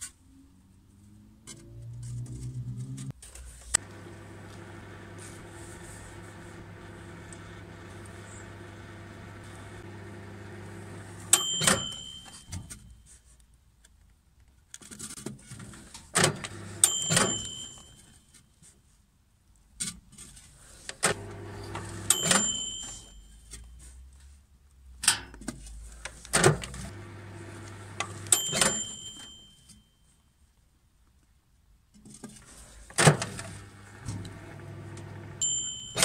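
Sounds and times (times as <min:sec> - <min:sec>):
microwave oven humming: 0:03.8 - 0:12.0, 0:16.4 - 0:17.6, 0:21.1 - 0:23.0, 0:26.9 - 0:29.3, 0:33.2 - 0:36.0.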